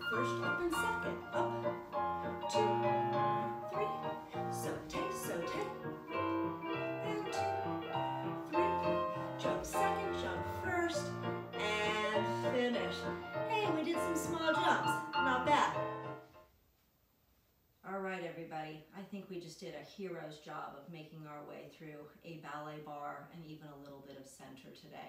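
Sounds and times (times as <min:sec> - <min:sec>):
piano music: 0:00.0 - 0:16.4.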